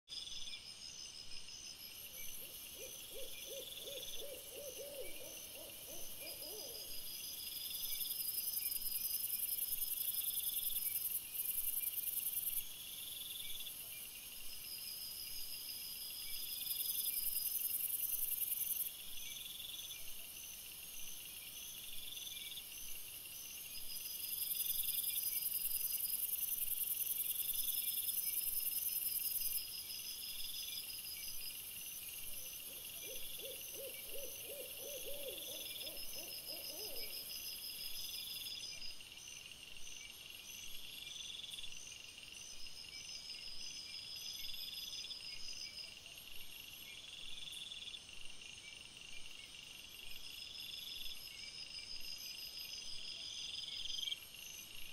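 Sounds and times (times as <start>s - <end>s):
owl hooting: 2.8s - 7.0s, 32.7s - 37.4s.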